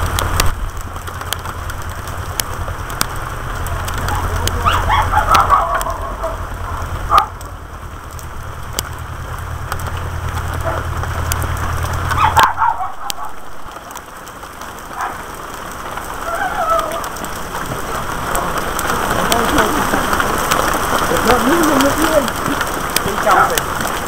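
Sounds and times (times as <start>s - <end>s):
drops tapping near microphone: 0.0s - 14.0s
rain pattering: 0.0s - 24.0s
faint voices: 3.7s - 7.9s, 16.2s - 24.0s.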